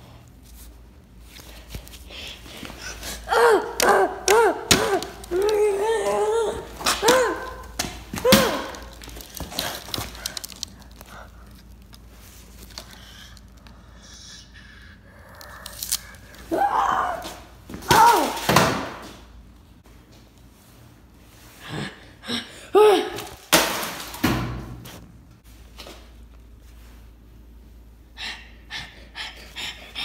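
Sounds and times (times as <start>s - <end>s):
person shouting or gasping: 3.0s - 9.0s.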